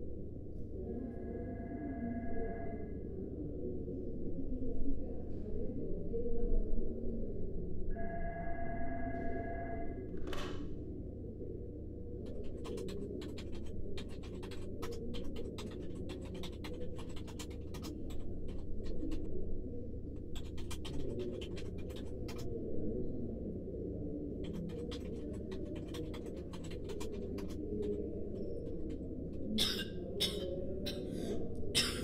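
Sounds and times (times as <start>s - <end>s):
light clicks and scratches: 12.2s - 19.3s, 20.1s - 22.6s, 24.4s - 31.1s.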